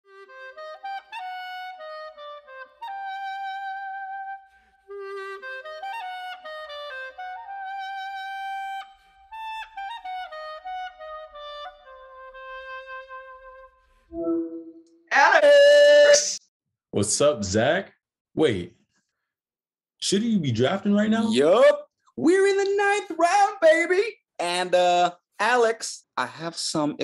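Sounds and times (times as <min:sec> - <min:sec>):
clarinet playing klezmer dance melody: 0:00.1 - 0:14.8.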